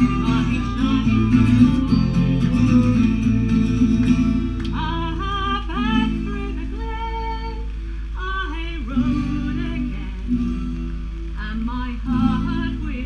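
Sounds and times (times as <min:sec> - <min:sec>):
person singing sliding notes: 0:00.0 - 0:03.5
acoustic guitar: 0:00.0 - 0:13.0.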